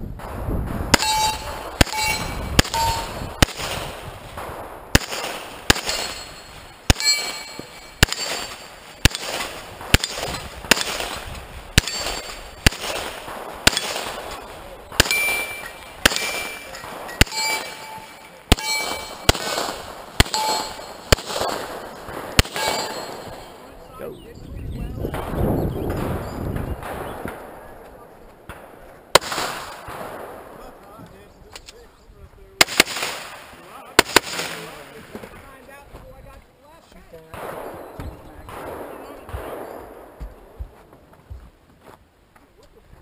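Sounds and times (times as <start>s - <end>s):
pistol shots: 0.2s - 23.7s, 28.4s - 30.8s, 32.6s - 35.2s, 37.3s - 40.2s
steel target ringing: 1.0s - 3.6s, 5.2s - 11.2s, 11.8s - 12.8s, 15.0s - 21.6s, 22.4s - 23.7s.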